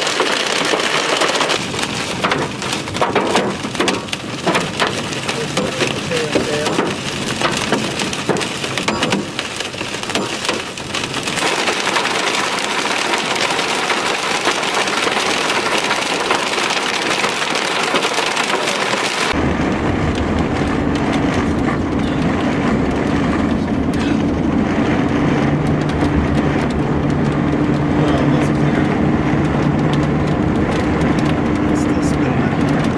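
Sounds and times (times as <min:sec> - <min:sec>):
hail and rain pelting vehicle: 0:00.0 - 0:32.9
low vehicle drone: 0:19.3 - 0:32.9.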